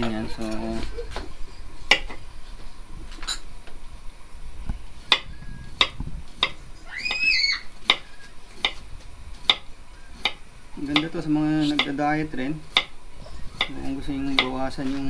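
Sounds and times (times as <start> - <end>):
knife tapping on wooden board: 1.9 - 2.2, 5.1 - 6.6, 9.4 - 12.0, 12.7 - 12.9, 13.6 - 14.6.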